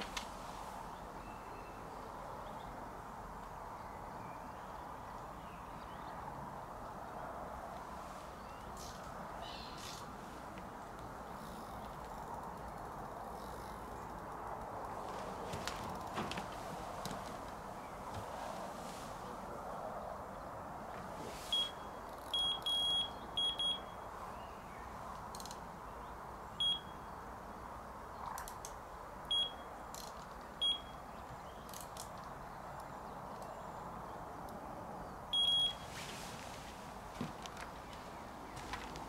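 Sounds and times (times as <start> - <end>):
bite alarm beeping: 21.5 - 24.0, 26.6 - 27.0, 29.3 - 29.6, 30.6 - 31.0, 35.4 - 35.8.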